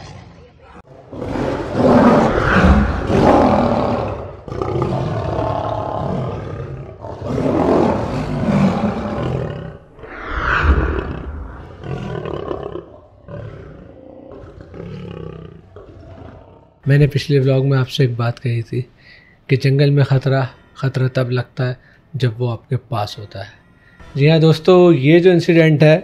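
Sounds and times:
tiger roaring: 0:00.0 - 0:16.8.

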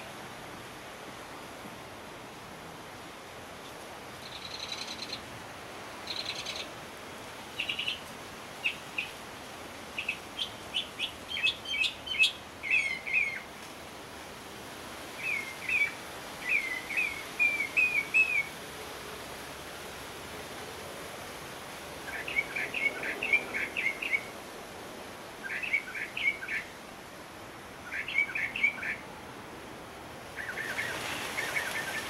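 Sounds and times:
mockingbird singing: 0:10.0 - 0:13.4, 0:25.4 - 0:26.7, 0:27.9 - 0:29.0.

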